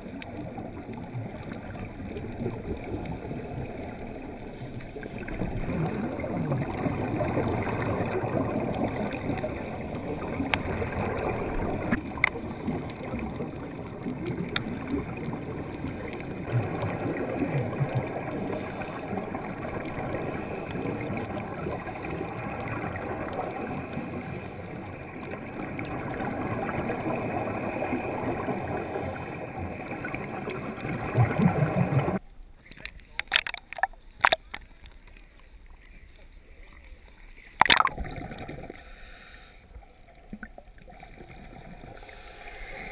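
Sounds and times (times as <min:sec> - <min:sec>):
underwater exhaled bubbles gurgling: 0:00.0 - 0:32.2, 0:33.2 - 0:35.9, 0:36.6 - 0:42.9
sharp clicks: 0:32.7 - 0:34.7.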